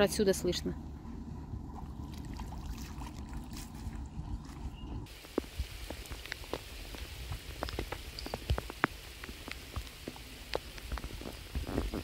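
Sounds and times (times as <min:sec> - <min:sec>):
rain hissing: 0:05.1 - 0:12.0
raindrops ticking on a surface: 0:05.1 - 0:12.0.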